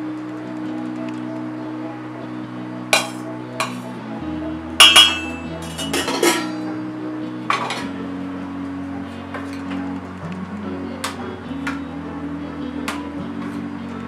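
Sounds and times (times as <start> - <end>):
soft background music: 0.0 - 14.0
metal spoon clinking on plates: 4.8 - 6.6.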